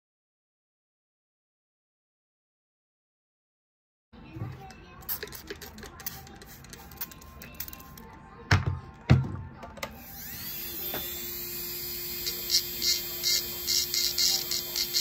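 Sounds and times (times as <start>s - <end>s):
rotary engraving tool whining: 10.0s - 15.0s.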